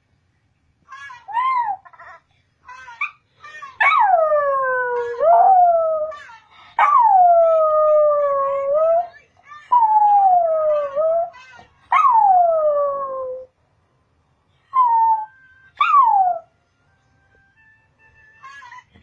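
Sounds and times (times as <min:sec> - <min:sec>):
dog yipping: 0:15.8 - 0:16.4.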